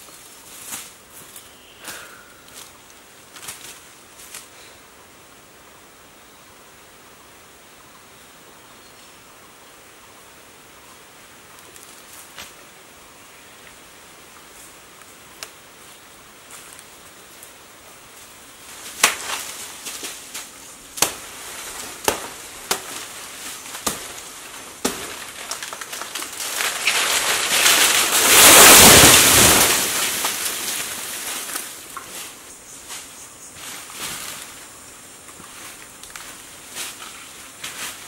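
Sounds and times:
leaves and branches thrashing: 0:00.0 - 0:04.5, 0:15.8 - 0:38.0
sharp wood cracks: 0:18.8 - 0:32.2.

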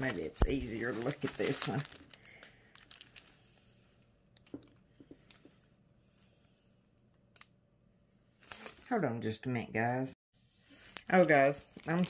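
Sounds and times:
plastic film crinkling: 0:00.0 - 0:03.6, 0:08.4 - 0:09.0, 0:10.8 - 0:12.0.

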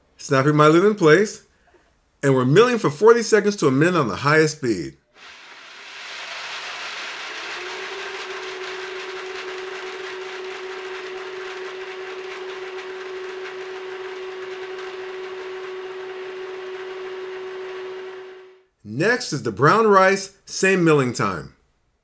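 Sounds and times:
blender grinding grain: 0:05.1 - 0:18.7
blender motor whine: 0:05.2 - 0:18.7.

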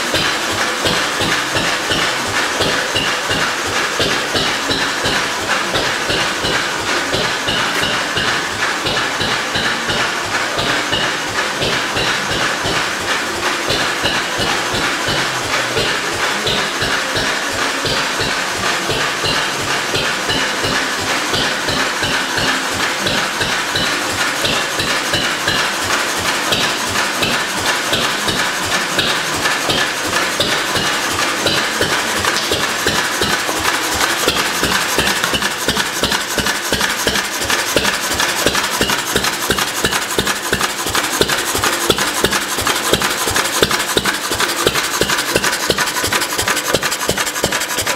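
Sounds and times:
stationary engine running: 0:00.0 - 0:47.9.

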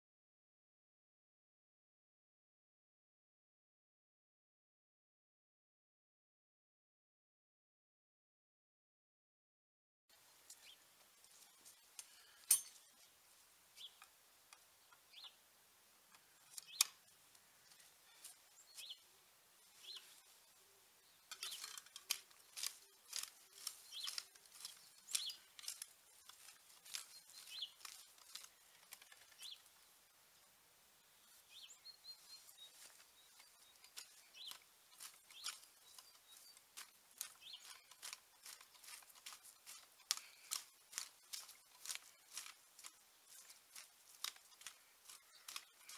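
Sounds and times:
garden tool scraping soil: 0:16.2 - 0:19.0, 0:19.6 - 0:20.4, 0:21.2 - 0:29.7, 0:31.5 - 0:45.9.

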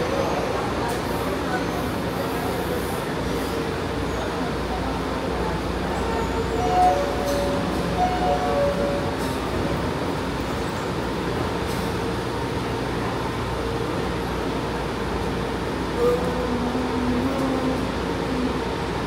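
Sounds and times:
metro train rumble: 0:00.0 - 0:19.0
brief loud tone: 0:06.2 - 0:09.2.

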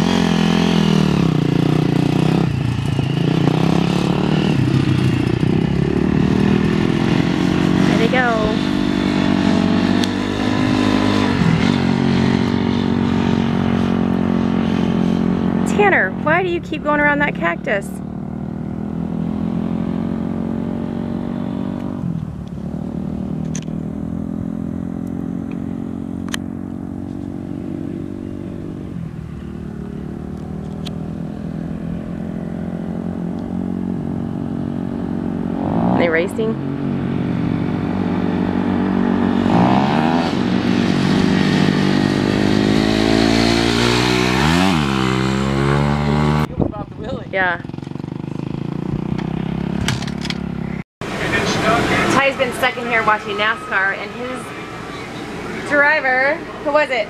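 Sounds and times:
dirt bike engine pulling away: 0:00.0 - 0:57.0
distant dirt bike circling: 0:00.0 - 0:57.0.

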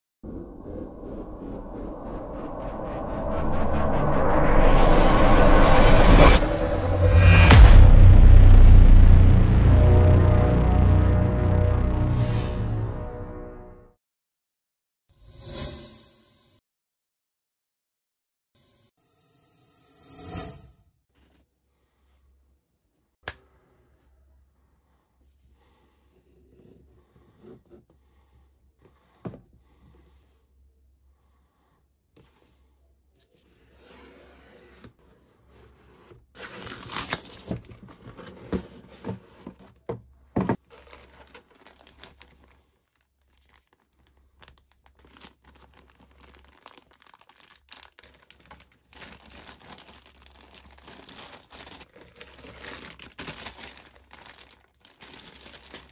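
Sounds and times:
plastic bags crinkling and tearing: 0:36.4 - 0:38.2, 0:40.6 - 0:55.9.

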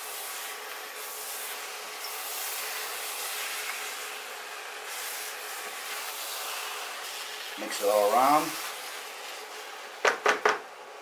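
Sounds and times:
rice sizzling in a pan: 0:00.0 - 0:11.0.

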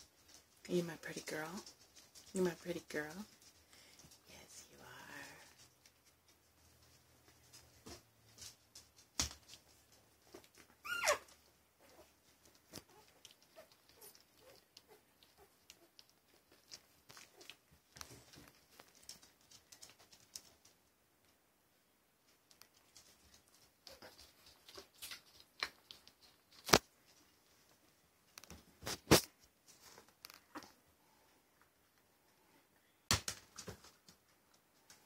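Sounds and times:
puppies nursing smacking: 0:05.6 - 0:21.2, 0:22.3 - 0:30.9.

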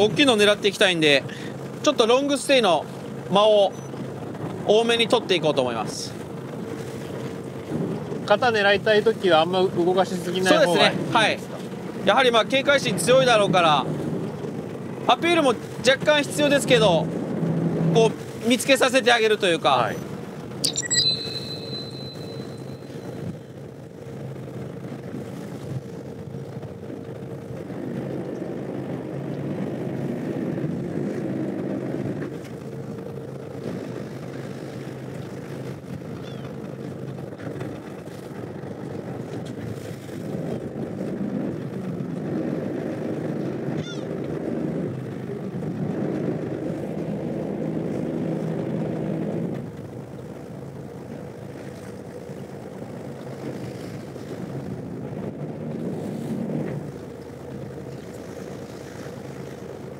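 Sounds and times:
boat engine humming: 0:00.0 - 0:59.9.

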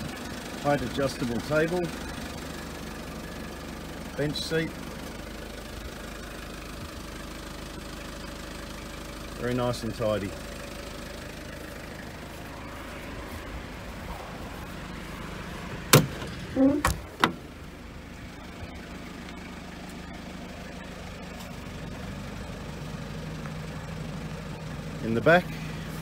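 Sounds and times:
diesel engine idling: 0:00.0 - 0:26.0
tailgate latch clacking: 0:15.9 - 0:17.4.

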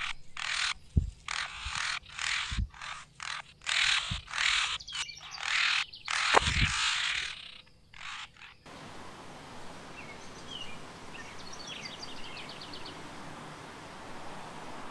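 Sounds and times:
bird calling harshly: 0:00.0 - 0:08.7
low thuds: 0:00.8 - 0:02.9, 0:04.0 - 0:04.4.

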